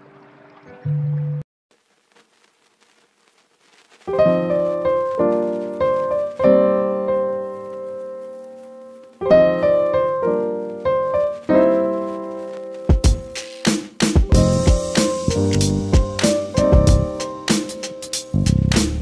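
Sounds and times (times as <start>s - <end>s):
slow piano chords: 4.1s - 13.6s, 14.2s - 18.8s.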